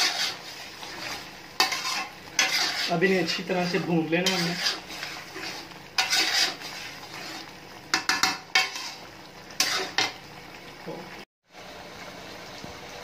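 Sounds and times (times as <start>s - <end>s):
metal spatula scraping pan: 0.0s - 10.2s
food sizzling: 0.0s - 13.0s.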